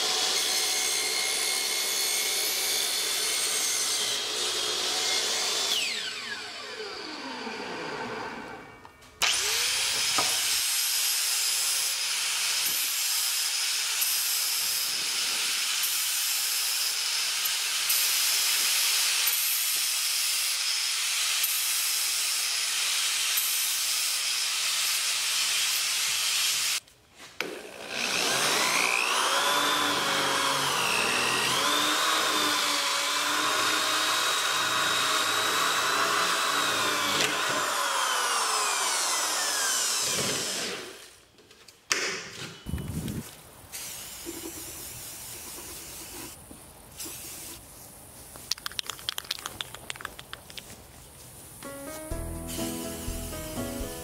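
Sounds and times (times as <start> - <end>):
electric drill whining: 0.0 - 19.4, 27.4 - 41.2
power tool cutting plastic pipe: 0.0 - 26.8, 27.4 - 41.2.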